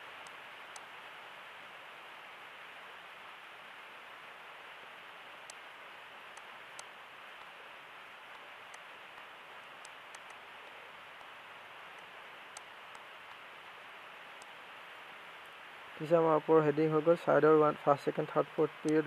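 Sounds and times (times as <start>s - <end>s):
faint hiss: 0.0s - 19.0s
computer mouse clicks: 9.8s - 10.4s.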